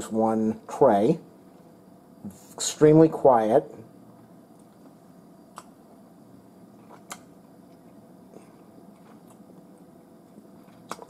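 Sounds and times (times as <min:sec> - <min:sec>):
low room hum: 0:00.0 - 0:11.0
chewing food: 0:06.8 - 0:11.0.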